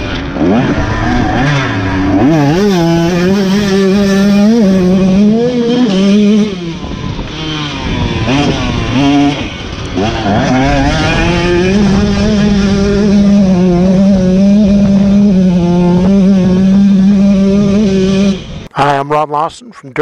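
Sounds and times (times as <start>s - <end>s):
motorcycle engine revving: 0.0s - 18.7s.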